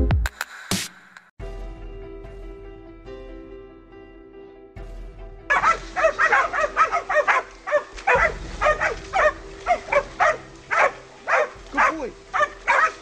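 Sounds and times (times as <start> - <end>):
music: 0.0 - 13.0
dog barking rapidly: 5.5 - 13.0.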